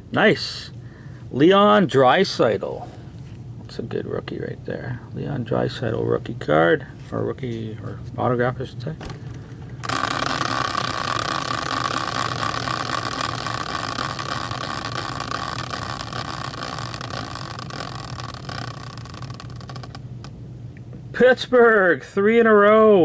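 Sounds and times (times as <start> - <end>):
prize wheel ticking whir: 9.8 - 20.3.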